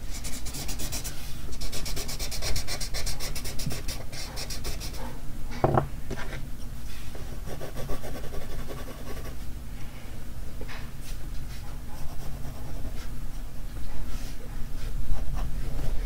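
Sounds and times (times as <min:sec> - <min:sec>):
pencil scratching on paper: 0:00.1 - 0:05.0, 0:07.4 - 0:09.4, 0:12.0 - 0:13.1.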